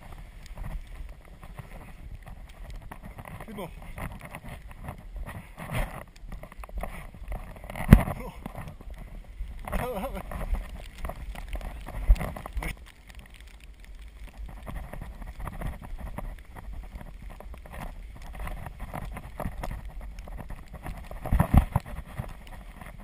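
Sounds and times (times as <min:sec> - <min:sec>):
tyres crunching on snow: 0:00.0 - 0:23.0.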